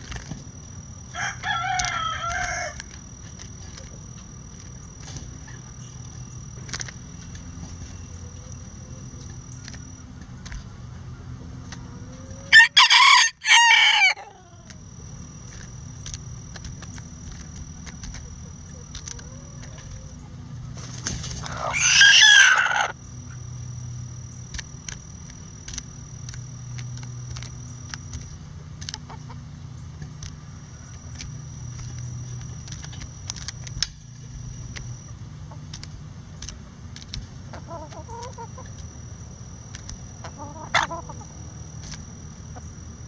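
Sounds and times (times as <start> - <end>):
rooster crowing: 1.1 - 2.8, 12.0 - 14.6, 21.4 - 23.0
beaks tapping cabbage: 15.4 - 20.1, 30.0 - 35.0
chickens clucking: 17.9 - 23.0, 28.8 - 29.5, 37.4 - 38.9, 40.2 - 41.4.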